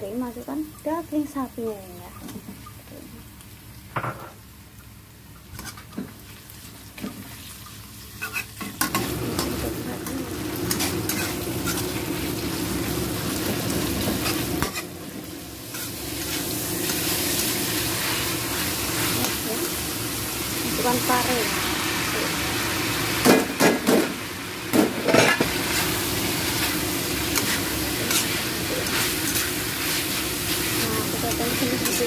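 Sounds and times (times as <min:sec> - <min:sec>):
meat sizzling in oil: 0:00.0 - 0:32.0
spatula scraping pan: 0:08.2 - 0:12.1, 0:13.4 - 0:14.9, 0:24.7 - 0:32.0.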